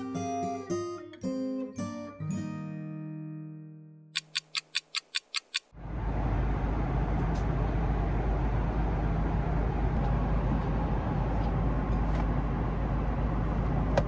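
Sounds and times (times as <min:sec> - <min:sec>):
airliner cabin rumble: 0:05.8 - 0:14.0.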